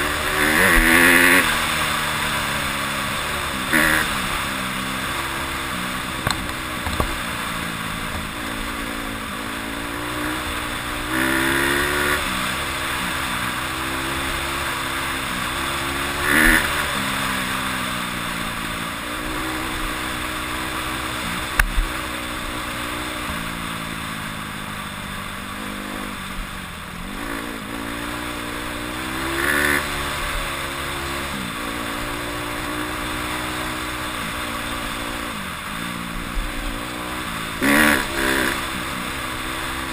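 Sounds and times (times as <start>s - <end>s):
motorcycle engine revving: 0.0s - 39.9s
sharp knocks: 6.2s - 7.2s.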